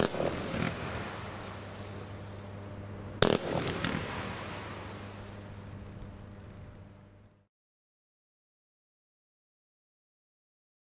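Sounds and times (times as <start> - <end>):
small firework pops: 0.0 - 1.6, 3.2 - 5.0
volley of firework shots: 0.0 - 6.0
fireworks battery bangs: 0.0 - 6.6
steady low hum: 0.0 - 7.5.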